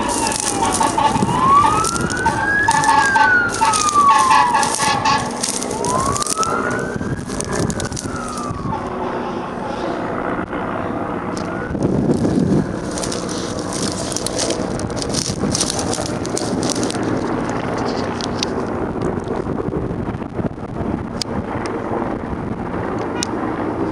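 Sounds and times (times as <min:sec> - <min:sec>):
emergency vehicle siren wailing: 0:00.0 - 0:18.6
steady rushing noise with crackles: 0:00.0 - 0:23.9.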